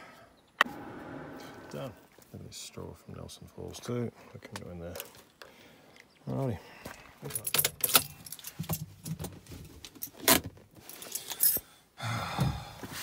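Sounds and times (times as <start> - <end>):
keys jangling and clinking: 7.3 - 9.2, 10.9 - 11.6.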